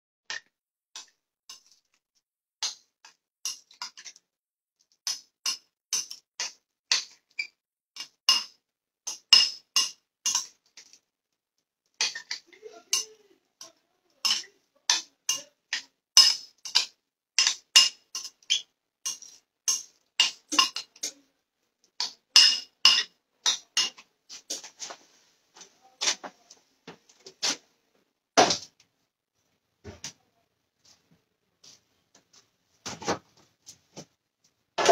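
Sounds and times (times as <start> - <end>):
metal spoon clinking glass bowl: 8.0 - 10.5, 12.0 - 21.2, 22.0 - 24.0.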